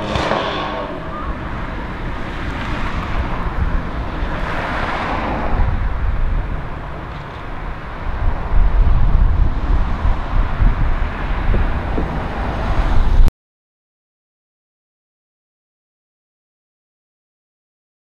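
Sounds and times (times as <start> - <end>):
heavy low rumble: 0.0 - 12.5
vehicle passing by: 0.0 - 13.2.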